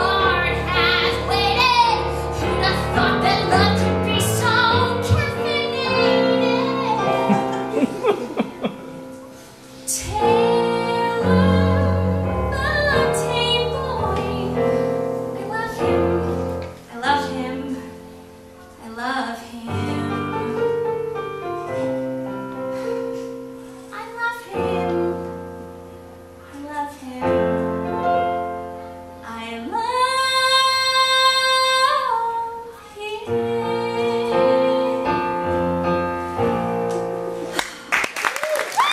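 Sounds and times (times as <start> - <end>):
woman singing: 0.0 - 7.3, 9.8 - 21.1, 23.9 - 25.6, 26.4 - 28.4, 29.2 - 35.6
piano accompaniment: 0.0 - 37.9.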